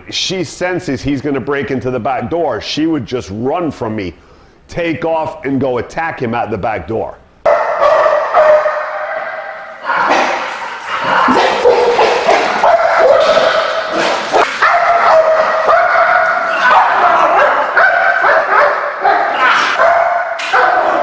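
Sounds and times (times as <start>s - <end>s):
dog barking and yelping: 7.5s - 21.0s.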